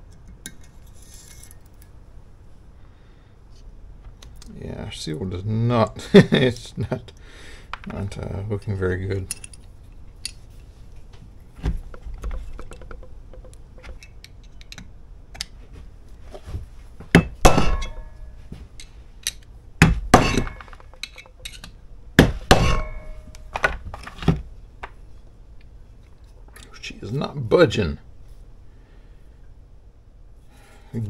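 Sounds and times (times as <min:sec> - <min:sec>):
hammer striking metal: 0:17.2 - 0:18.4, 0:19.8 - 0:21.0, 0:22.2 - 0:23.5.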